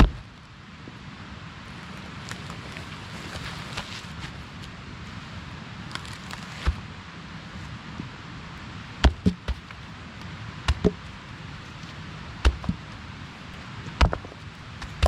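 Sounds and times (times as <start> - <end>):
stones clacking together: 13.9 - 15.0.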